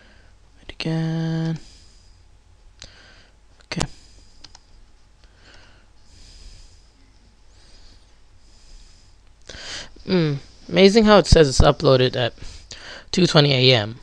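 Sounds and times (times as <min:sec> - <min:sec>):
breathing close to microphone: 0:01.6 - 0:04.4, 0:05.2 - 0:10.7, 0:12.3 - 0:13.1
computer mouse clicks: 0:04.4 - 0:04.8.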